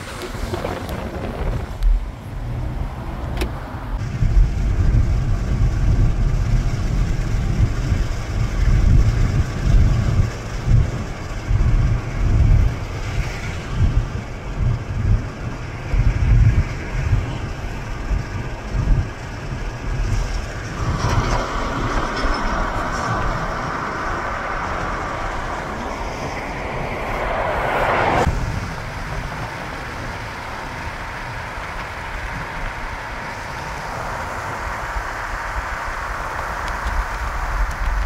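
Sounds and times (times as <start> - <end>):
car road and wind noise: 0.0 - 38.0
loud rushing noise: 19.8 - 38.0.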